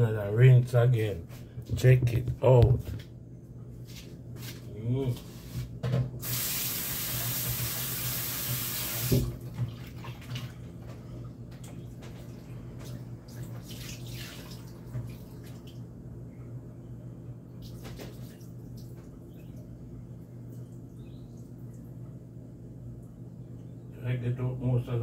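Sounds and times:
steady low hum: 0.0 - 8.2, 9.2 - 25.0
tap running hard into bowl: 6.2 - 9.3
tap shut off knock: 8.5 - 9.3
water sloshing and splashing: 9.2 - 15.9, 17.6 - 19.6.

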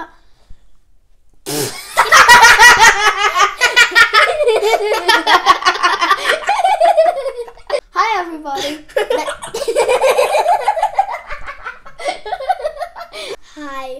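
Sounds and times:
children giggling: 1.8 - 7.8, 8.6 - 13.3.

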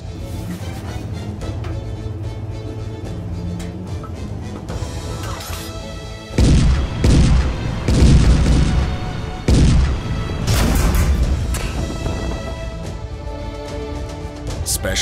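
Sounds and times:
dramatic background music: 0.0 - 15.0
tank gunfire and explosions: 5.0 - 13.0.

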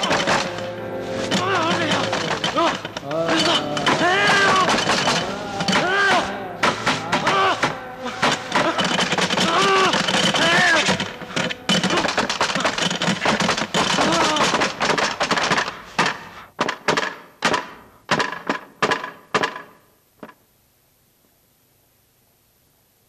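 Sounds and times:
voice: 0.0 - 11.0
loud clattering: 0.0 - 19.8.

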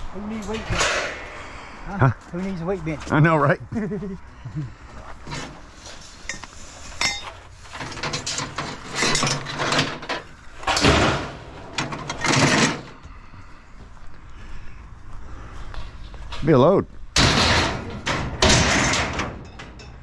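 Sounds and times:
scrap metal clattering and scraping: 0.1 - 1.6, 5.0 - 13.0, 17.2 - 20.0.

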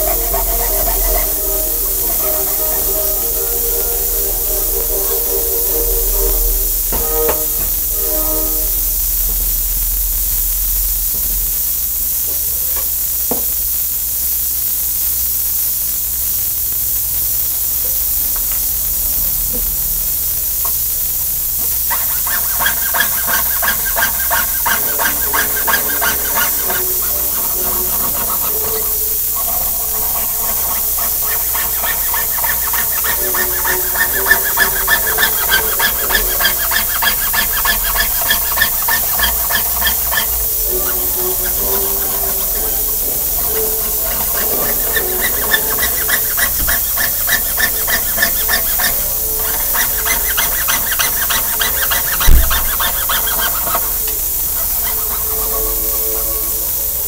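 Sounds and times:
saw blade cutting metal: 0.0 - 8.7, 21.6 - 56.7
steady hiss: 0.0 - 57.0.

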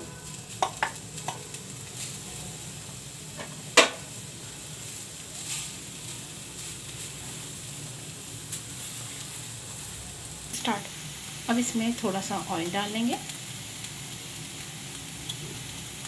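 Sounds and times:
food sizzling: 0.0 - 16.0
spatula knocking pan: 0.6 - 1.4, 3.4 - 4.1.

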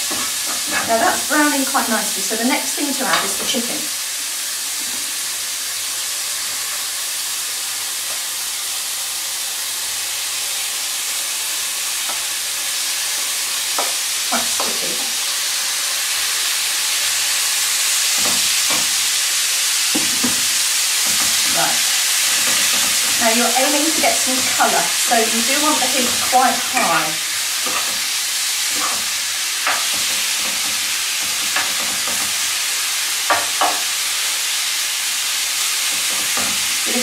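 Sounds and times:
spatula knocking and scraping pan: 0.0 - 1.3, 3.0 - 3.7, 18.0 - 19.0, 19.9 - 32.5, 33.3 - 34.0, 35.8 - 36.8
food sizzling in frying pan: 0.0 - 37.0.

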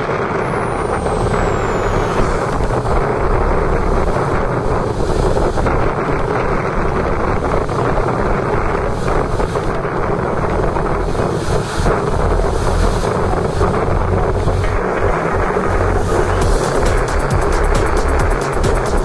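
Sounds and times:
breaking surf: 0.0 - 19.0
wind buffeting microphone: 0.0 - 19.0.

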